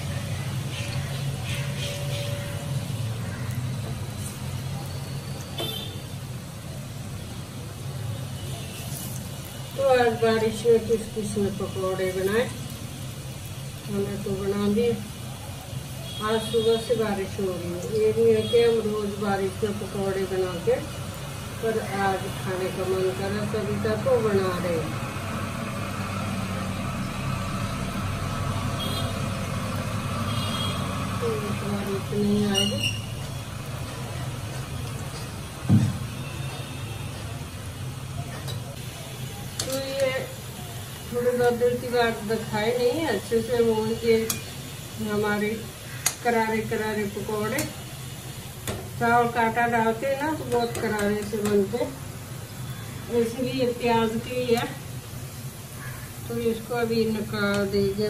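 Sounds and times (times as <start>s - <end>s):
food sizzling in hot oil: 0.0s - 58.0s
road traffic rumble: 0.0s - 58.0s.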